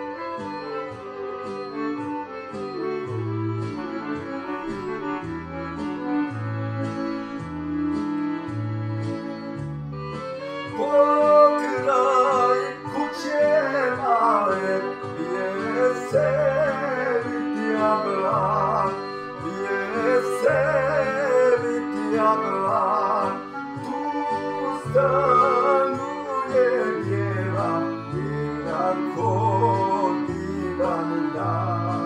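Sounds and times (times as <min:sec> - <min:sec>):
folk band with stepping bass: 0:00.0 - 0:32.0
person singing ornamented melody: 0:10.7 - 0:32.0.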